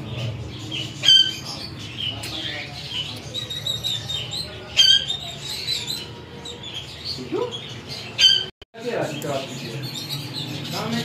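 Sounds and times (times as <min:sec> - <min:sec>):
parrots squawking: 0:00.0 - 0:08.5.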